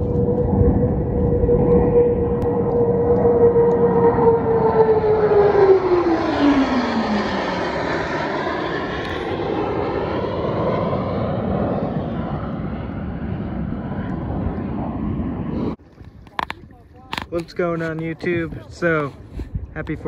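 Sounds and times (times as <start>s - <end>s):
falling jet whine: 0.0s - 15.8s
jet engine roar: 0.0s - 20.0s.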